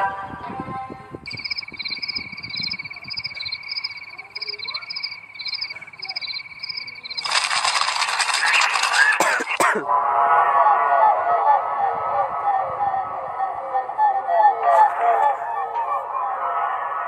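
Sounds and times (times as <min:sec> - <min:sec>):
paired chirps: 0:01.3 - 0:08.3
crickets trilling: 0:01.3 - 0:09.5
loud burst of noise: 0:06.4 - 0:09.6.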